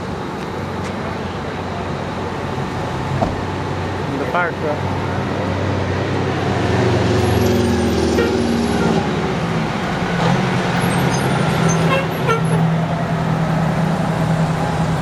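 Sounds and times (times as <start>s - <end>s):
fire truck engine droning: 0.0s - 15.0s.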